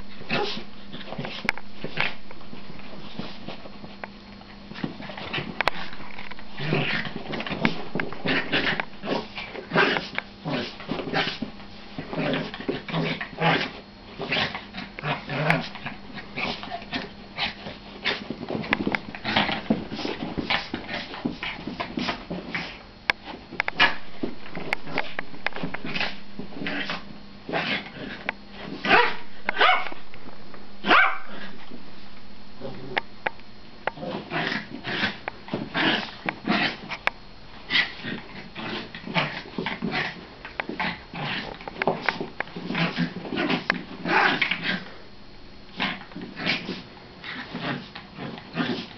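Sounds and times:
small dogs growling and whining: 0.2s - 2.2s, 4.8s - 22.8s, 25.8s - 29.9s, 34.0s - 36.9s, 37.7s - 45.0s, 45.7s - 48.9s.

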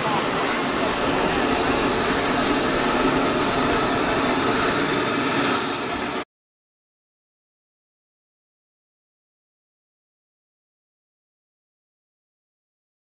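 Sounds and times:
model aircraft motor whining: 0.0s - 6.2s
rushing noise: 0.0s - 6.2s.

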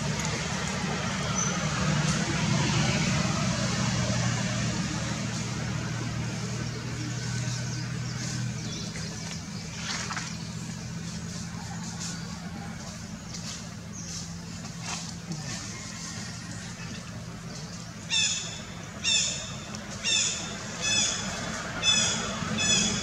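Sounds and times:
low engine hum: 0.0s - 23.0s.

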